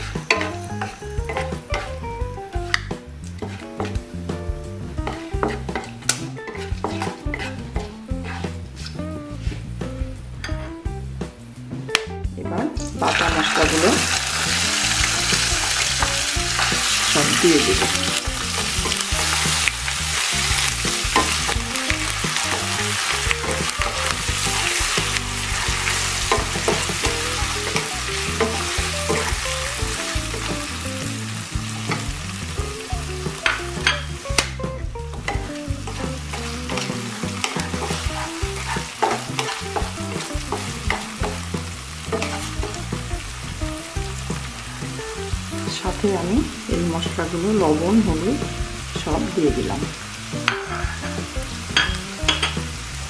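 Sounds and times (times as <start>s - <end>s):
wooden spatula scraping pan: 0.0s - 2.0s, 2.8s - 4.3s, 4.9s - 9.8s, 13.1s - 30.2s, 35.1s - 43.1s, 50.4s - 52.6s
paste sizzling in hot oil: 0.0s - 10.4s, 13.0s - 53.0s
spatula clicking on pan: 20.8s - 29.5s, 35.2s - 42.8s.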